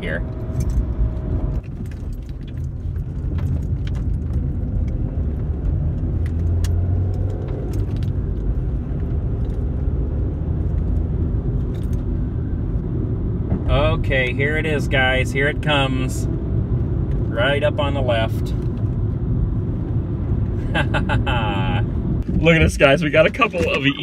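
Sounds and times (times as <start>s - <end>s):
car engine and tyres rumbling: 0.0s - 24.0s
light clicks and rattles: 1.6s - 5.0s.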